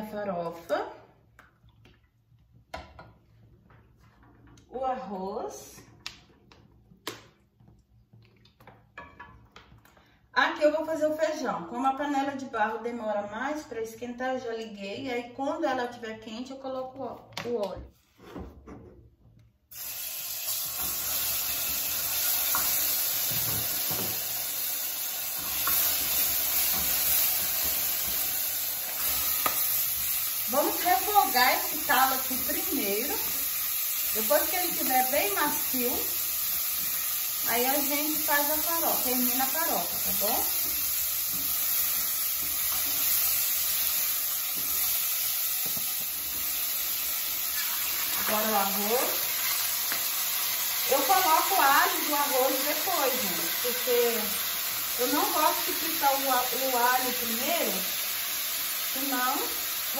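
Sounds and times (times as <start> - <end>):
paste sizzling in hot oil: 19.7 - 59.9.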